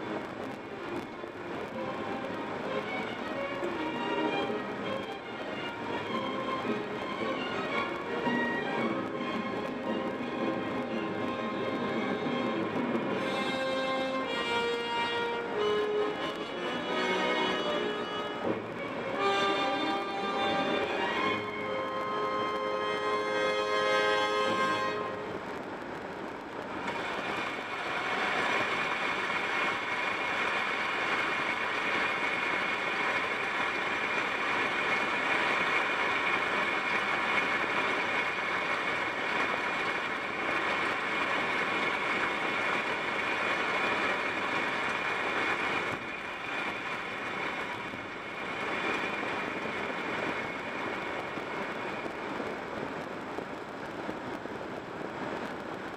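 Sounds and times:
car tyre and wind noise: 25.0s - 55.9s.

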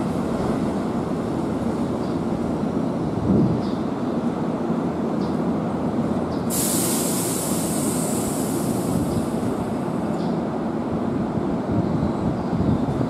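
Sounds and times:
high hiss: 6.5s - 10.0s.

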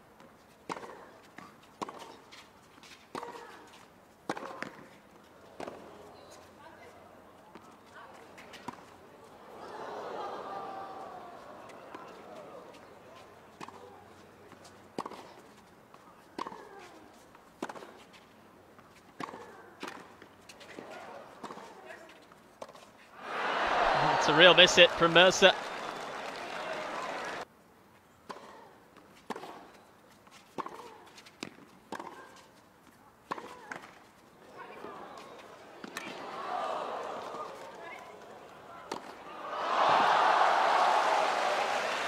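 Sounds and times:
tennis rackets hitting ball: 0.7s - 2.1s, 4.3s - 4.9s, 30.5s - 32.3s, 35.8s - 36.2s, 38.9s - 40.1s
shoes squeaking on court: 4.4s - 9.0s, 29.2s - 32.5s.

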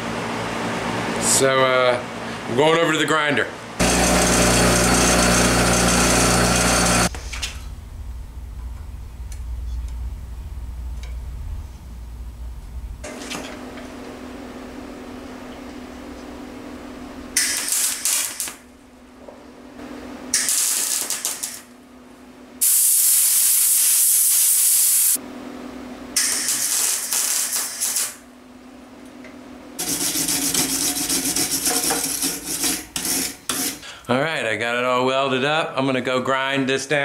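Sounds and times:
low steady hum: 7.1s - 17.4s
welding arc crackling hiss: 17.4s - 18.7s, 20.3s - 21.7s, 22.6s - 25.2s, 26.2s - 28.3s.

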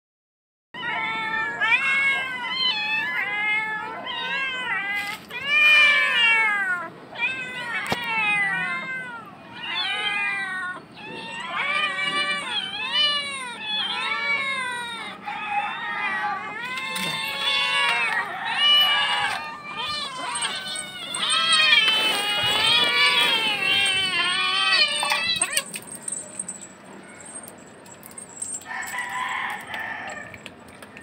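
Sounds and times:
young cats meowing: 0.8s - 31.0s.

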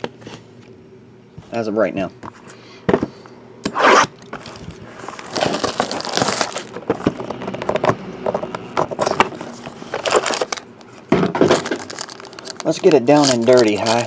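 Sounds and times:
shrink-wrap crinkling and tearing: 4.4s - 7.2s, 9.0s - 14.0s.

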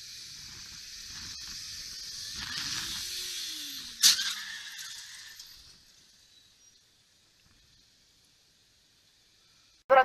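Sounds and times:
motorcycle engine: 0.0s - 9.8s.

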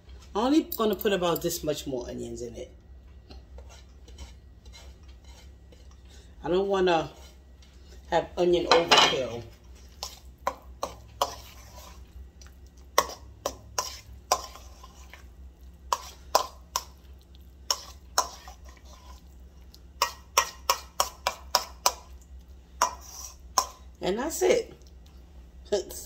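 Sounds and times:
fork scraping metal bowl: 3.5s - 6.1s, 6.8s - 8.0s, 9.2s - 12.2s, 12.9s - 17.0s, 17.6s - 19.4s, 20.0s - 22.1s, 22.8s - 23.9s.

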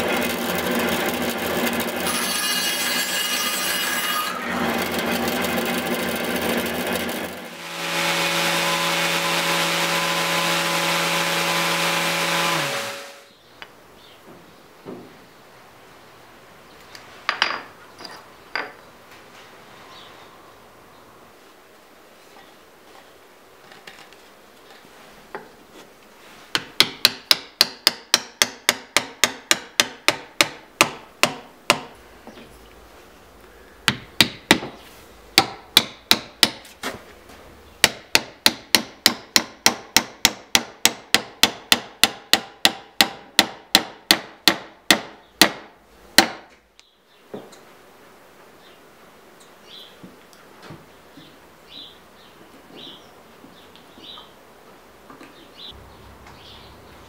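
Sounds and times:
hammer blows on wood: 7.6s - 13.3s.

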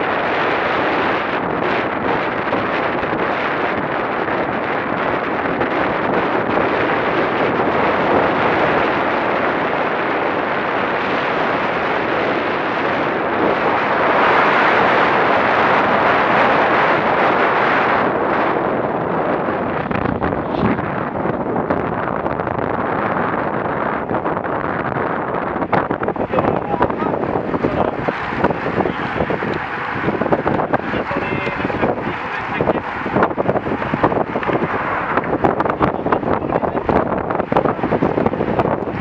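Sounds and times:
wind rushing over microphone: 0.0s - 39.0s.

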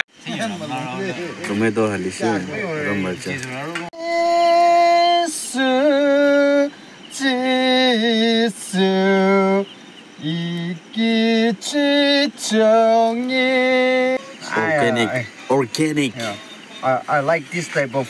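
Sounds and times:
person singing unaccompanied: 4.0s - 15.4s.

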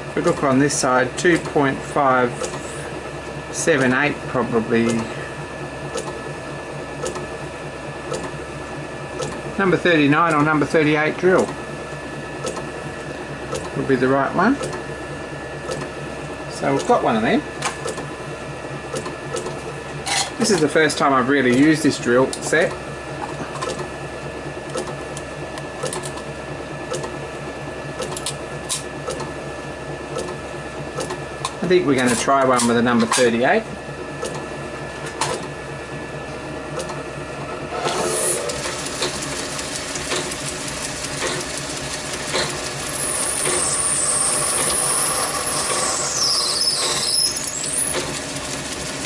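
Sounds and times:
motor hum with faint whine: 0.0s - 49.0s
small lathe running: 0.0s - 49.0s
high squeal of drill cutting: 42.9s - 48.1s.

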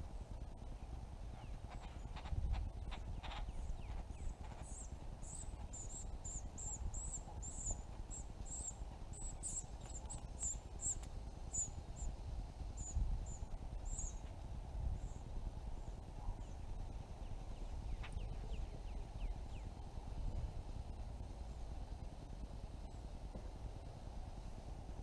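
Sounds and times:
wind on microphone: 1.3s - 7.8s, 9.4s - 21.2s.

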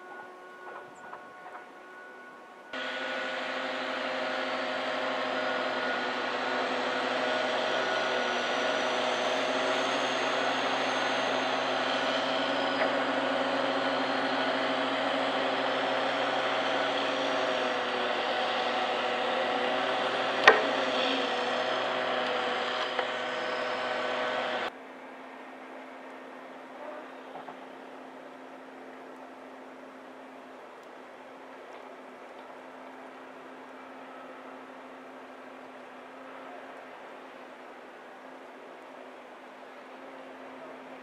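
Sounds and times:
machine hum: 2.7s - 30.6s.

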